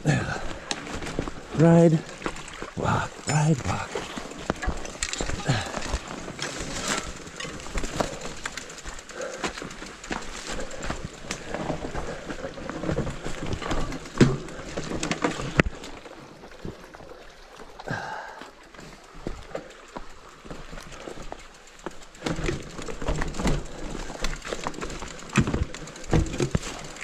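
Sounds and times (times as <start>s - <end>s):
tyres crunching on gravel and rocks: 0.2s - 16.9s, 17.8s - 27.0s
bike clicks and knocks: 4.0s - 16.8s, 18.4s - 27.0s.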